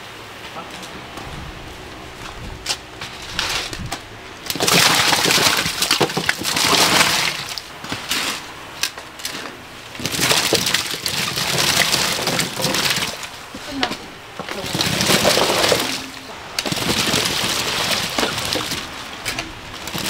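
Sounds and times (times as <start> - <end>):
water splashing: 4.5 - 7.8, 9.9 - 20.0
corn cobs clattering into a pot: 4.5 - 20.0.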